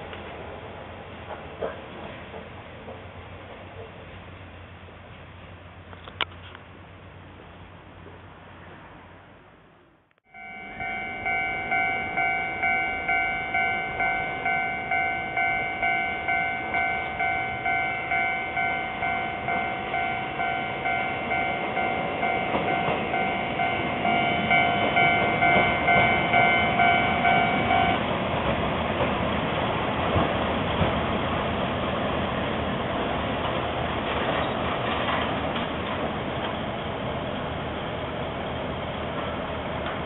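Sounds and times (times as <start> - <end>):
diesel railcar approaching: 0.0 - 40.0
level crossing bell ringing: 10.3 - 28.0.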